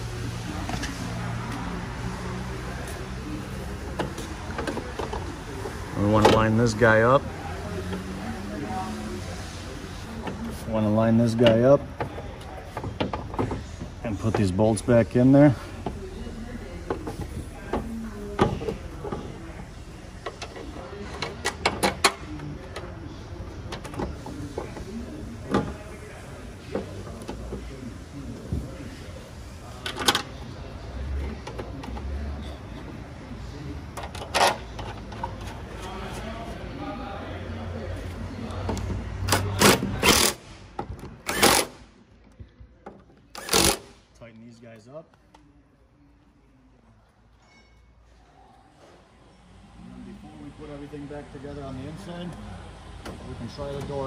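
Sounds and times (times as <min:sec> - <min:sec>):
power tool driving bolts: 0:39.3 - 0:40.4, 0:41.2 - 0:41.8, 0:43.4 - 0:44.0.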